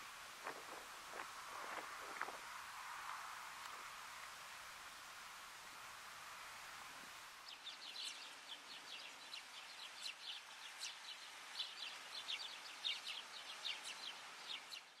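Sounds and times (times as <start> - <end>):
bird singing scratchy notes: 0.4 - 2.4.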